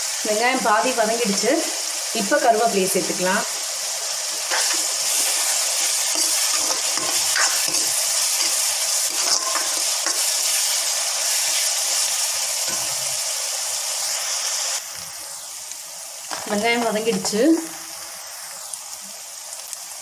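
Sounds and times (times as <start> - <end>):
onions sizzling in hot oil: 0.0 - 20.0
steel spoon scraping pan: 4.3 - 10.5.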